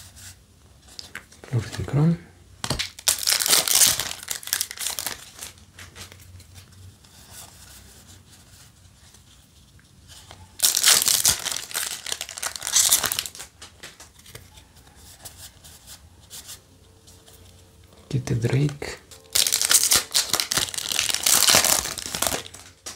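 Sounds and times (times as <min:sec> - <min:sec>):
cards rustling: 0:02.6 - 0:22.9
foil wrapper crinkling: 0:02.7 - 0:06.4, 0:10.5 - 0:14.5, 0:18.2 - 0:22.9.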